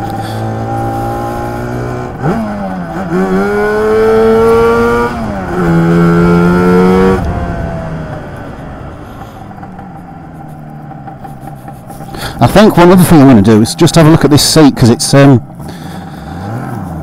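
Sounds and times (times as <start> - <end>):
scooter engine accelerating: 0.0 - 13.8, 15.4 - 17.0.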